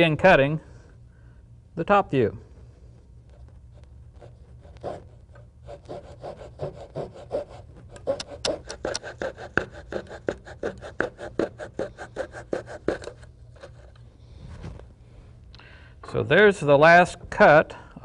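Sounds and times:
coping saw cutting wood: 5.7s - 13.8s.

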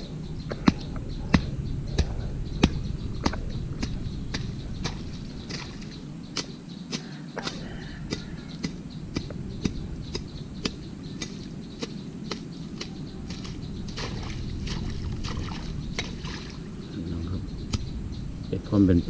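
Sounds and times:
low rumble: 0.0s - 6.7s, 7.7s - 19.0s
water sloshing and trickling: 4.8s - 6.0s, 12.8s - 16.9s.

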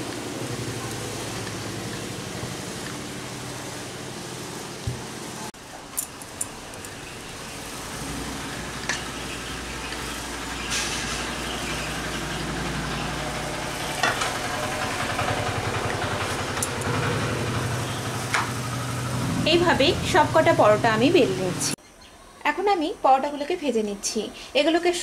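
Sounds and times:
engine idling hum: 6.5s - 20.8s.

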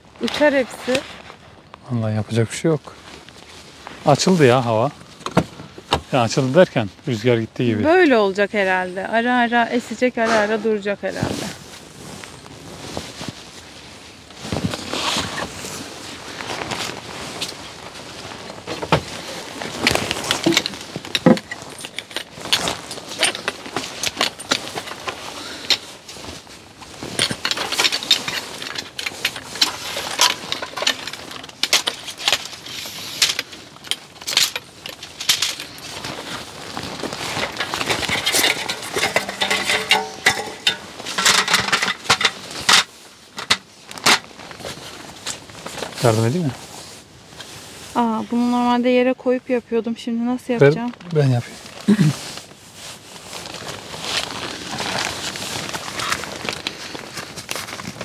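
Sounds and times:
metal folding chairs clicking: 27.1s - 36.1s, 37.2s - 44.2s.

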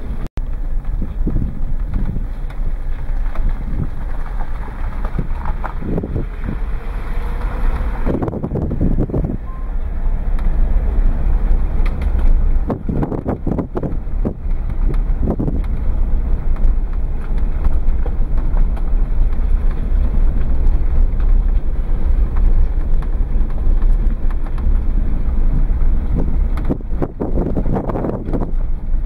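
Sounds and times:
car driving rumble inside: 0.0s - 29.0s.

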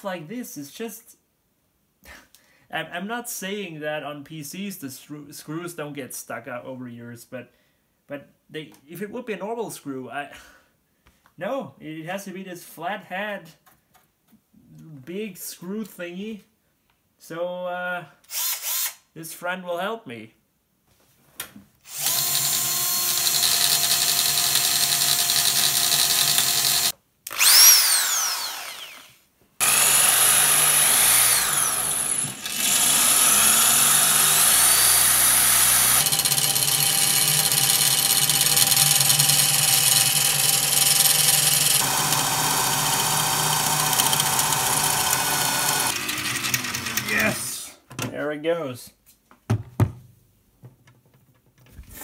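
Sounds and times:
electric drill drilling screw: 18.3s - 19.0s, 21.9s - 47.4s.

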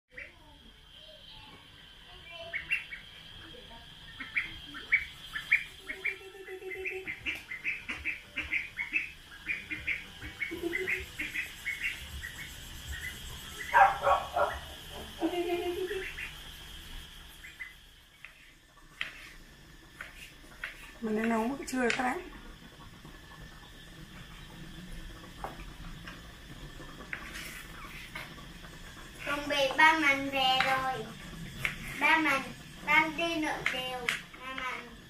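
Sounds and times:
duckling peeping: 2.4s - 18.2s.

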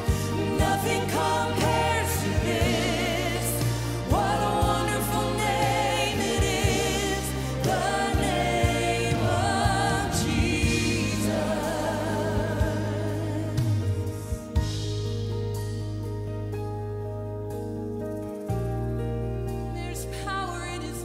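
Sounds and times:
backing singers: 0.0s - 14.4s
sustained bass: 0.0s - 21.0s.

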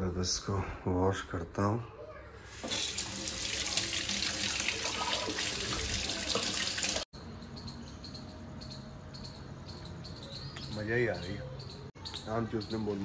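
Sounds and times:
faint outdoor background: 0.0s - 13.0s
tap water pouring and splashing: 2.5s - 7.1s.

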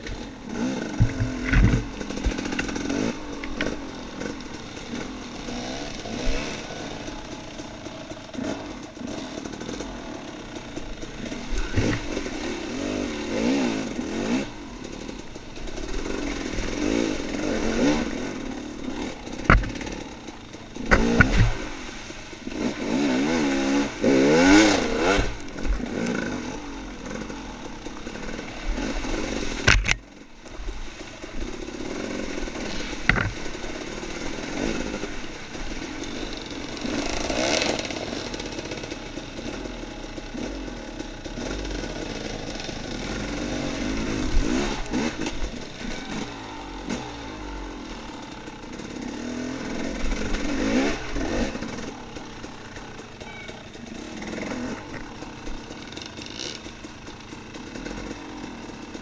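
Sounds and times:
dirt bike engine revving: 0.0s - 59.0s
sharp knocks and clatters: 0.8s - 4.3s, 19.3s - 20.1s, 20.8s - 21.6s, 33.0s - 33.5s.

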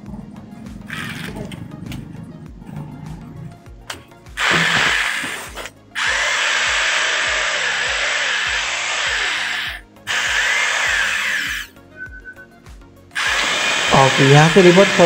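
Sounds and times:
hammer drill motor running: 4.4s - 11.8s, 13.2s - 15.0s.

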